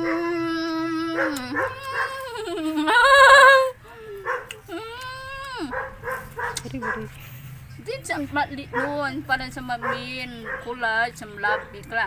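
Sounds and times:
woman wailing: 0.0s - 5.8s.

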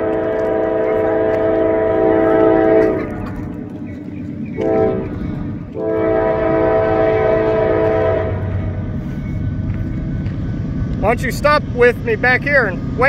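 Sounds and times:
locomotive air horn blasts: 0.0s - 3.2s, 4.6s - 8.8s.

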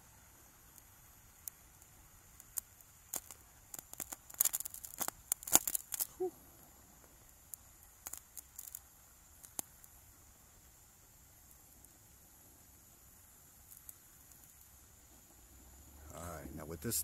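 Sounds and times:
torch flame hiss: 0.0s - 17.0s
brazing rod crackling and popping: 0.7s - 6.2s, 7.0s - 10.1s, 13.5s - 15.3s.

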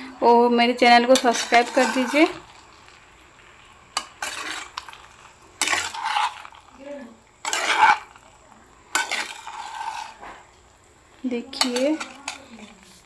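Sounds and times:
spatula scraping pasta in a pan: 0.9s - 10.7s, 11.3s - 13.0s.

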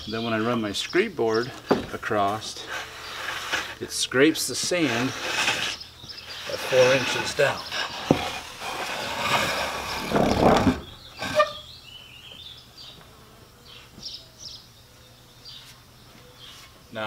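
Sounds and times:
wooden board scraping sand: 1.5s - 11.6s.

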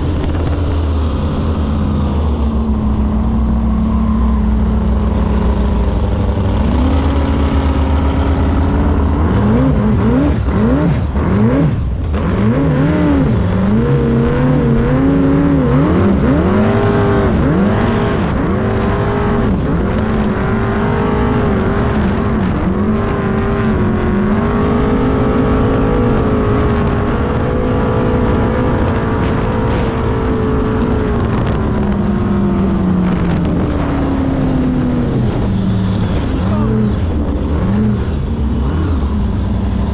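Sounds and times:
boat engine running at low speed: 0.0s - 39.9s.

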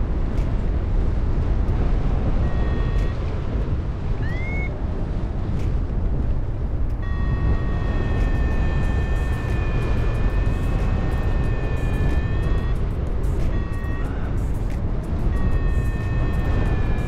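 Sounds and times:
wind rushing over microphone: 0.0s - 17.0s
variometer electronic tone: 2.4s - 3.4s, 4.2s - 4.8s, 6.9s - 17.0s.

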